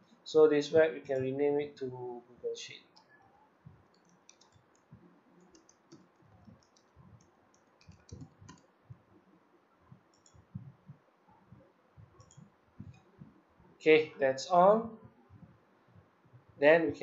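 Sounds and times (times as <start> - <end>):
keyboard typing: 2.9 - 9.1, 10.0 - 10.9, 11.6 - 13.4
mouse clicks: 3.0 - 8.7, 10.1 - 10.7, 12.0 - 13.3.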